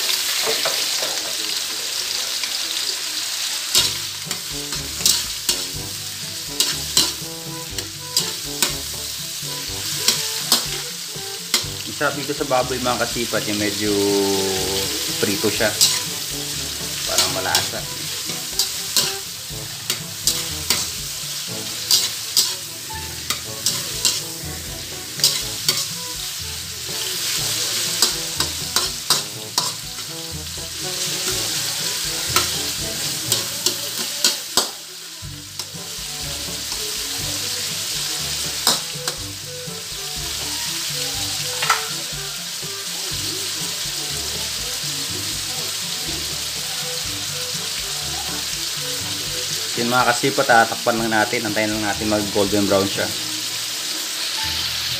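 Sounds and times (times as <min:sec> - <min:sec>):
meat sizzling in oil: 0:00.0 - 0:54.9
metal spatula scraping wok: 0:03.7 - 0:34.8, 0:35.4 - 0:44.5.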